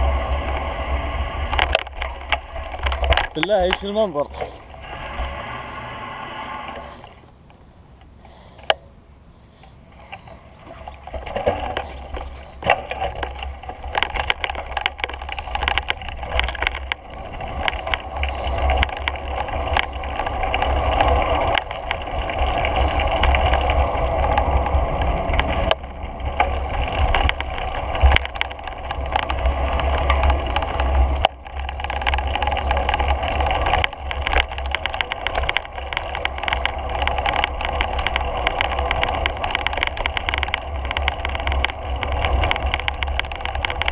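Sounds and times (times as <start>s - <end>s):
steady whir of travel: 0.0s - 43.9s
small rattles and clicks: 1.3s - 5.4s, 9.6s - 43.9s.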